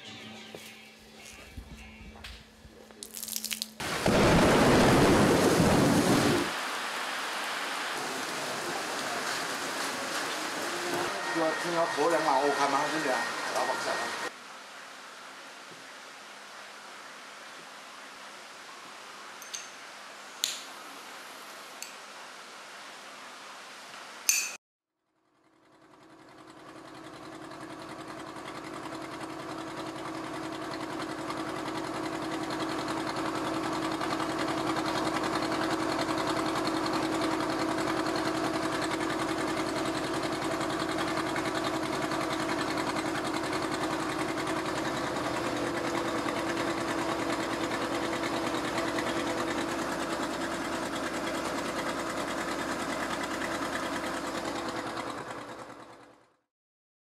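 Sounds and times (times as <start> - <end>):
engine running: 8.0 - 14.4, 25.2 - 56.5.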